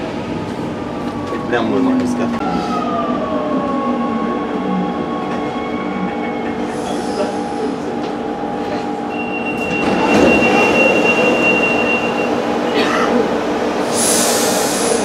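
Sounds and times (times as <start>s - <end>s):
train doors sliding open: 6.4s - 13.2s.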